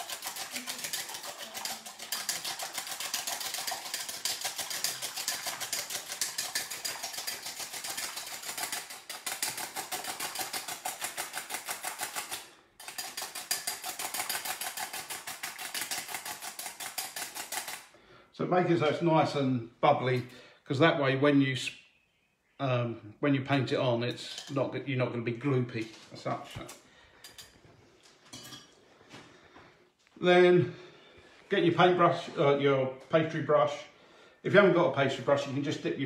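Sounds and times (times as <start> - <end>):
fork beating egg in bowl: 0.0 - 17.9.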